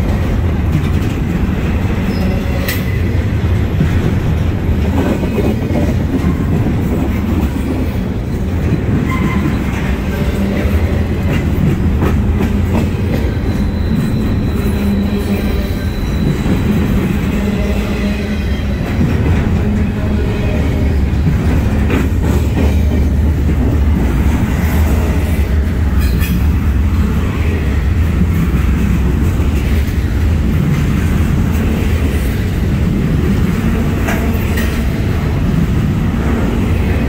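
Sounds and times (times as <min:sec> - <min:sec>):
clacks over rail joints: 0:00.0 - 0:02.0, 0:02.7 - 0:14.3, 0:21.0 - 0:25.0
steel wheels rumbling on rail: 0:00.0 - 0:37.0.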